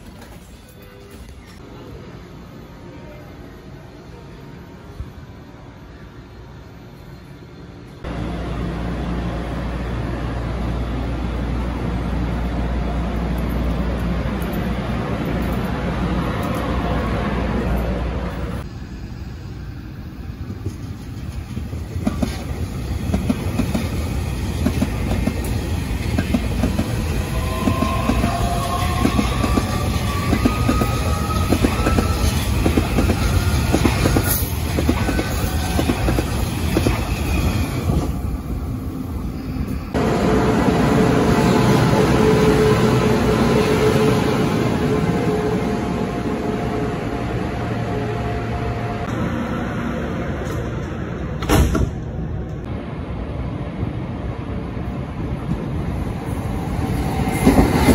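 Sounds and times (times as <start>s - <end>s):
train wheels clicking on rails: 20.4s - 38.2s, 56.4s - 57.9s.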